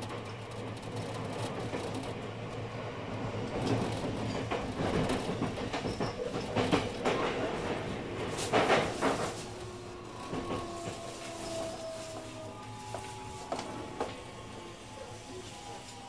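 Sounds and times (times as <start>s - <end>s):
wheels clicking over rail joints: 0.0s - 9.6s
electric train running hum: 0.0s - 16.0s.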